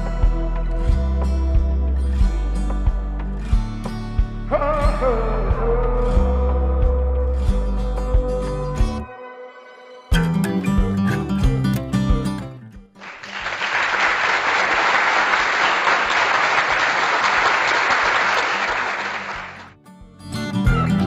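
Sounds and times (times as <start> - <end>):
guitar music: 0.0 - 13.0, 19.7 - 21.0
applause: 13.0 - 19.8.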